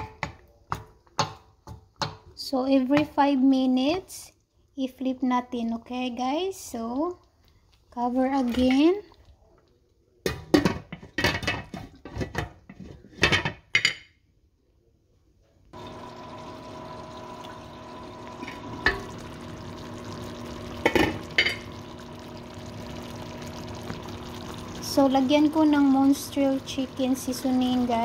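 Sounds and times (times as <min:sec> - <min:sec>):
food simmering hiss: 0:05.6 - 0:10.1, 0:15.8 - 0:28.0
steady hum: 0:15.8 - 0:28.0.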